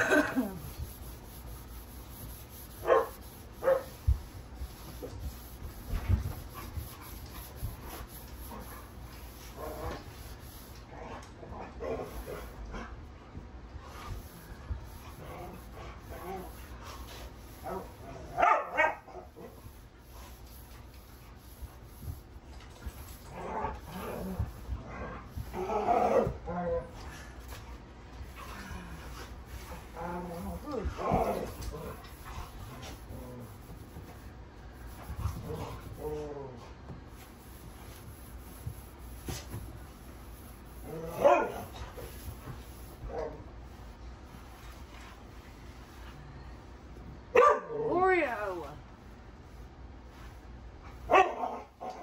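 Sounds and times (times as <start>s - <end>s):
dog barking: 2.8s - 4.0s, 18.4s - 19.1s, 47.3s - 47.8s, 51.1s - 51.7s.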